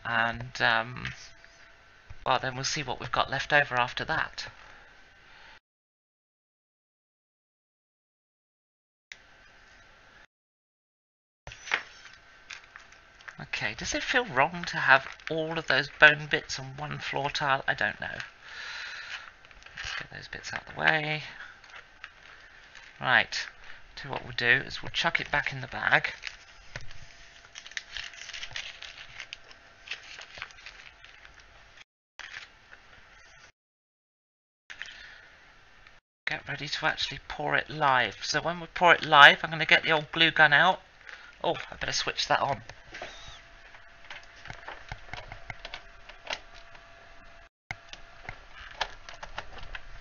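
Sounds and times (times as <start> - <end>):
plastic bag crinkling: 11.5 - 18.4, 19.0 - 31.6.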